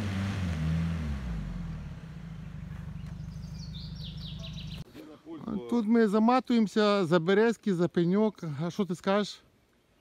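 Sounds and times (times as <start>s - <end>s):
suv engine revving: 0.0s - 4.8s
bird chirping falling notes: 2.3s - 4.8s.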